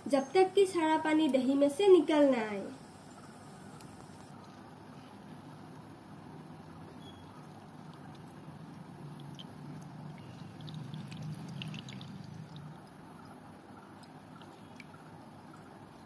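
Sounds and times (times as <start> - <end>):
low hum: 3.0 - 16.0
small drips and splashes: 6.6 - 16.0
liquid trickling into a bowl: 7.1 - 16.0.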